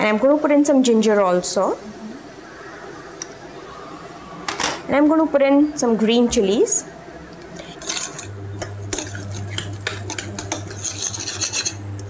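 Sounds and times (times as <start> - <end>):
low steady hum: 0.0 - 12.0
spoon scraping a saucepan: 7.6 - 11.9.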